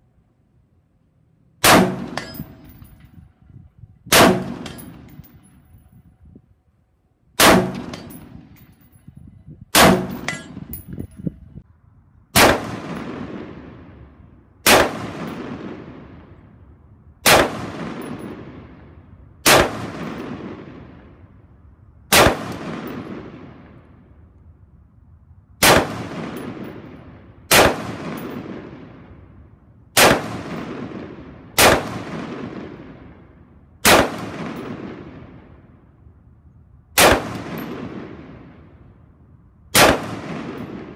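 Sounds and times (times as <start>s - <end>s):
rifle shots with echo: 1.6s - 3.2s, 4.1s - 5.7s, 7.4s - 9.0s, 9.7s - 10.8s, 12.3s - 16.6s, 17.2s - 21.3s, 22.1s - 24.1s, 25.6s - 35.9s, 37.0s - 39.1s, 39.7s - 40.9s.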